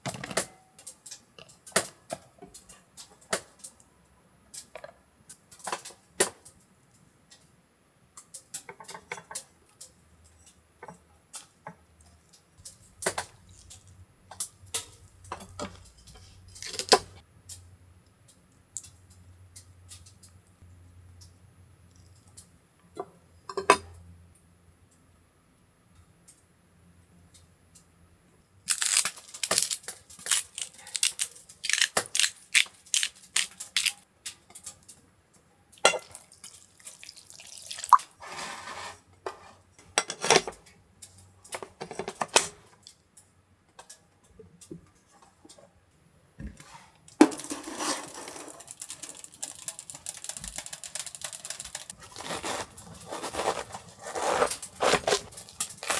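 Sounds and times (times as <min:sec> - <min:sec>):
rustling: 0:46.6 - 0:55.9.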